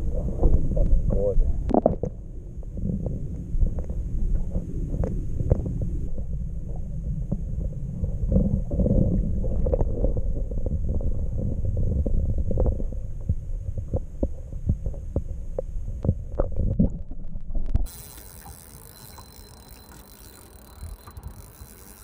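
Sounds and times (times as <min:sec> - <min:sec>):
muffled underwater rumble: 0:00.0 - 0:22.0
faint steady high tone: 0:17.9 - 0:22.0.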